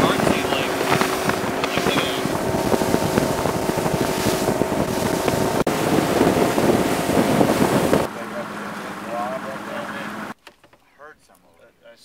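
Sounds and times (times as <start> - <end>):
wind buffeting microphone: 0.0 - 8.1
motorboat engine drone: 0.0 - 10.4
water spray rushing: 0.0 - 10.4.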